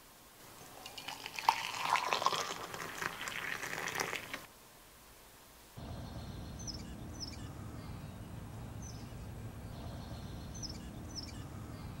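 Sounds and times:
low steady rumble: 5.8s - 12.0s
small bird chirping: 5.8s - 12.0s.

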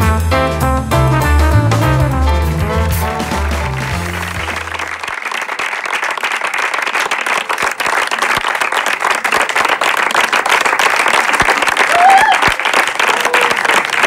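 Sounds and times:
brass jazz tune: 0.0s - 5.2s
audience applauding: 2.6s - 14.0s.

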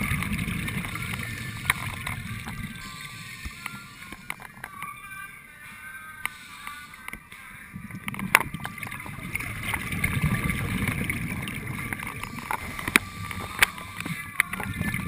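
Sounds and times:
underwater bubbling rumble: 0.0s - 4.3s, 7.7s - 15.0s.

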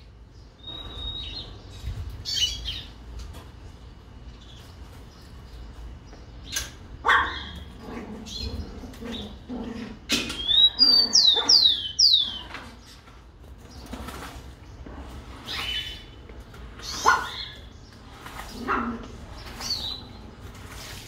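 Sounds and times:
harsh bird calls: 0.0s - 3.1s, 4.1s - 21.0s
sparrow whistling song: 0.6s - 1.6s.

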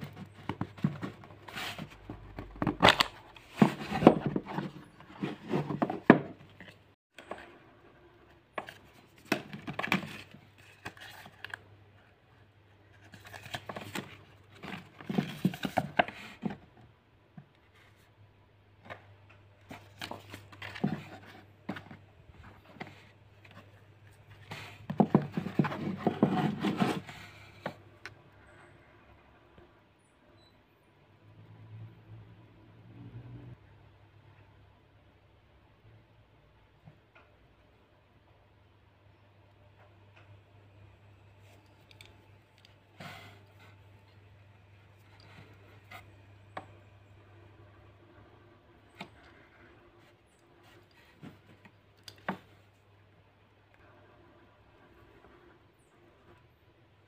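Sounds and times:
cardboard box being opened: 0.0s - 6.4s, 13.0s - 16.6s
small taps and scraping: 18.8s - 28.2s, 41.4s - 44.2s.

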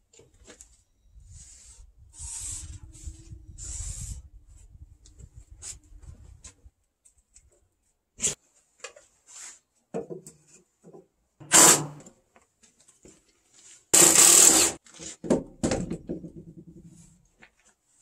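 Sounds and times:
cordless drill driving screws: 11.4s - 12.0s, 14.0s - 14.8s.

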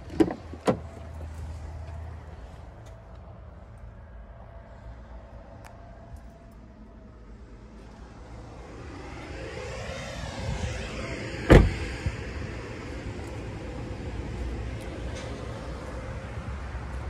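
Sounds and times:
outdoor background noise: 0.0s - 17.0s
car door thud: 11.5s - 11.8s.

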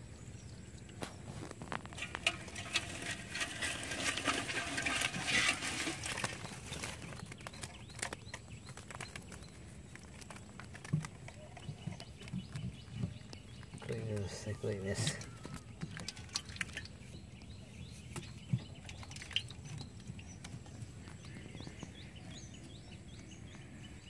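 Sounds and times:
water splashing and dripping: 1.7s - 8.1s, 15.0s - 17.4s, 18.2s - 20.6s.

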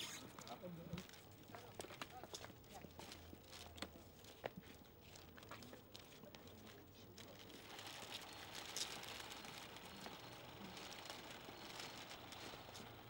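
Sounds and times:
light clicks and shuffles: 0.0s - 8.0s
cellophane crinkling: 5.1s - 13.0s.

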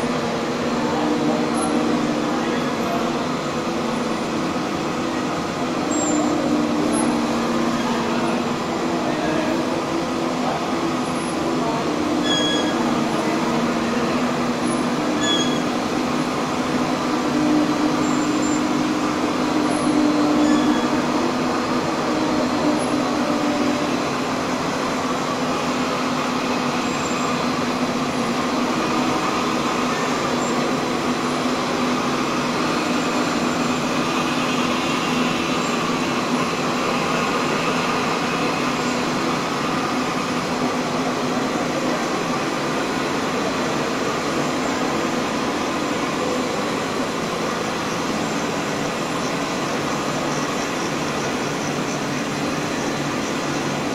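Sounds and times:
machine hum and whir: 0.0s - 53.9s
faint high squeaks: 12.2s - 12.8s, 15.2s - 15.7s.

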